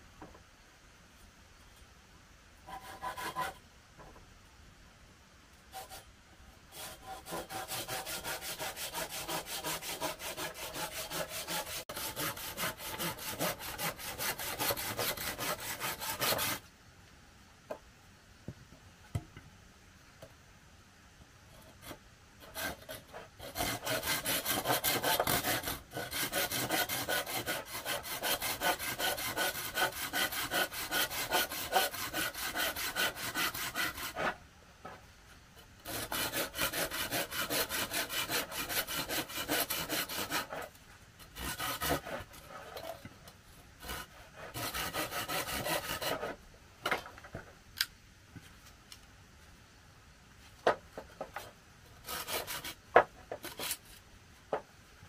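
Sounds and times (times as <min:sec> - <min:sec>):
hand saw cutting wood: 0:02.7 - 0:03.6, 0:06.7 - 0:16.6, 0:21.8 - 0:34.4, 0:35.8 - 0:43.0, 0:43.8 - 0:46.4, 0:52.0 - 0:53.8.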